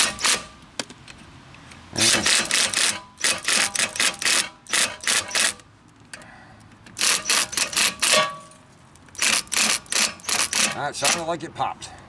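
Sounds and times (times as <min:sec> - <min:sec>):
impact wrench hammering bursts: 0:00.0 - 0:00.6, 0:02.0 - 0:05.6, 0:07.0 - 0:08.5, 0:09.2 - 0:11.3.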